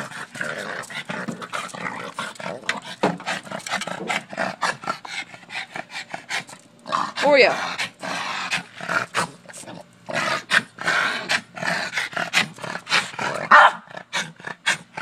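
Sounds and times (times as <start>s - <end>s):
dog barking and growling: 10.2s - 15.0s.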